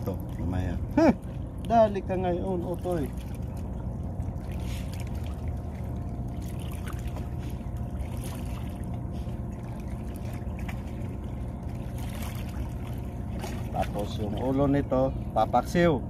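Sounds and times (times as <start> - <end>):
low engine drone: 0.0 - 16.0
light splashes and knocks: 2.7 - 14.5.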